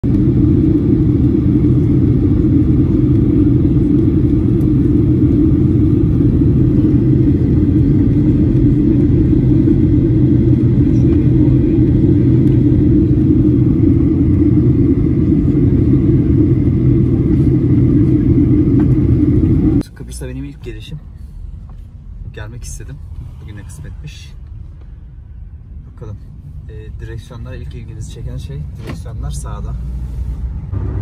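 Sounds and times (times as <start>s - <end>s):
airliner cabin rumble: 0.0s - 19.8s.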